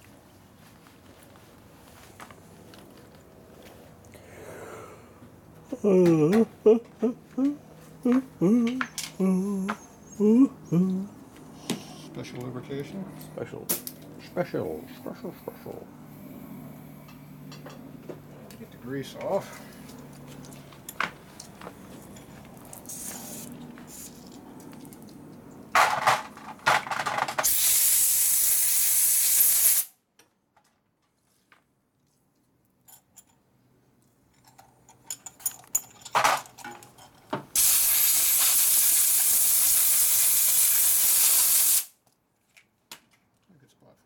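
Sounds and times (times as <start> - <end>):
compressed air hissing: 27.4 - 29.9, 37.6 - 41.9.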